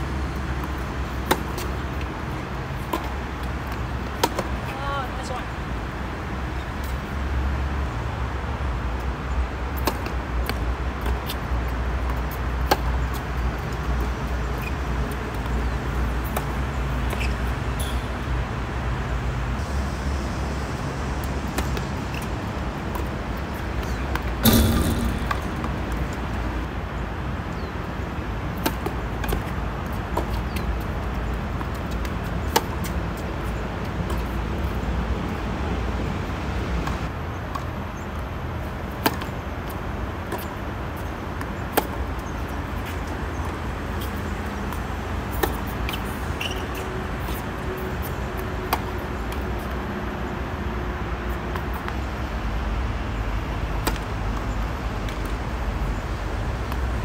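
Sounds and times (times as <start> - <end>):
tennis balls struck by racquets: 0.4 - 4.8, 9.7 - 11.4, 12.0 - 14.1, 22.8 - 26.9, 28.5 - 30.7, 41.4 - 46.0, 53.8 - 54.4
loud knock: 24.4 - 25.8
low rumble: 24.4 - 26.6.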